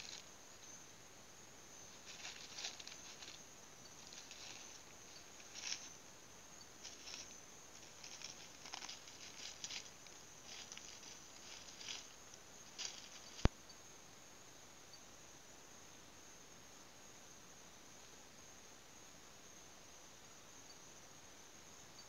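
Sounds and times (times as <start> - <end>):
dry leaves rustling underfoot: 0.0 - 0.2, 1.9 - 6.0, 6.7 - 13.5.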